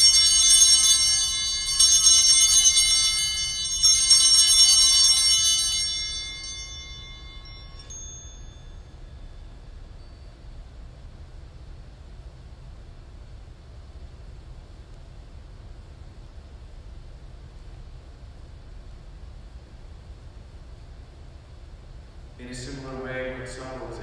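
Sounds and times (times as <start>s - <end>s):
small bells jangling: 0.0s - 10.5s.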